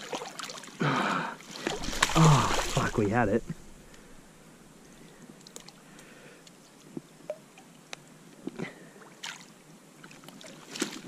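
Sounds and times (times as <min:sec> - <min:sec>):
water splashing and dripping: 0:00.0 - 0:00.8, 0:01.5 - 0:03.6.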